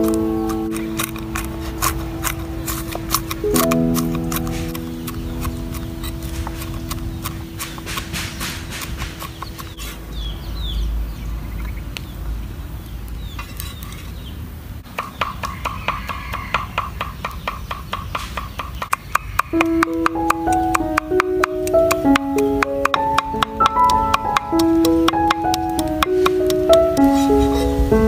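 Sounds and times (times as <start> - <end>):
cleaver chopping on wooden board: 0.4 - 9.9
bird chirps: 2.3 - 14.4, 15.0 - 27.9.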